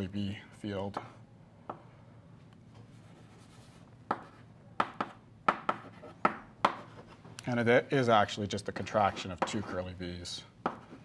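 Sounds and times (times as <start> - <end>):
chalk taps: 2.8 - 7.2, 9.1 - 9.9, 10.6 - 11.0
chalk scratching on blackboard: 2.9 - 7.2, 8.9 - 9.9, 10.7 - 11.0.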